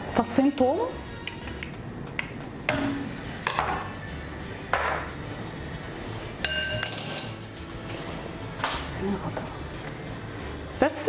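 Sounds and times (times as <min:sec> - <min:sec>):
ringing metallic ping: 0:06.4 - 0:07.4
spoon and bowl clinking on saucepan: 0:06.4 - 0:07.5.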